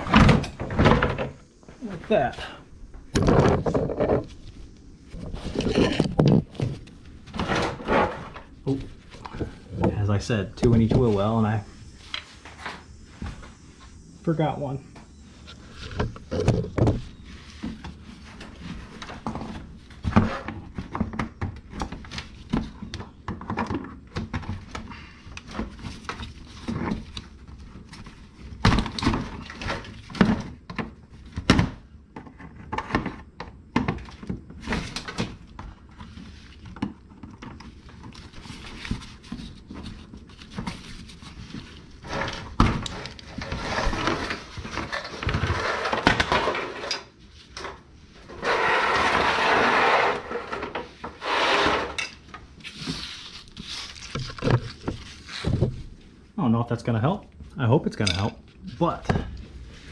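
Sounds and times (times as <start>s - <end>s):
plastic liner rustling: 34.0s - 56.0s.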